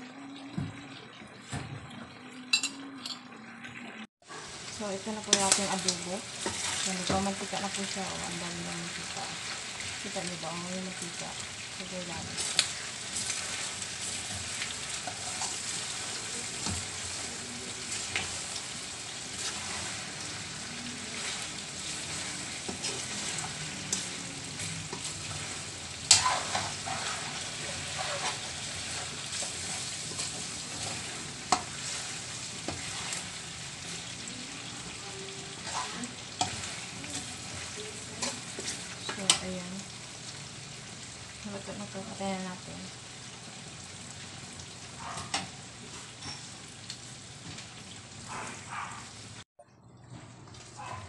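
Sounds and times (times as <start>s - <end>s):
meat sizzling in a wok: 4.2s - 49.4s
metal spatula scraping pan: 19.3s - 33.4s.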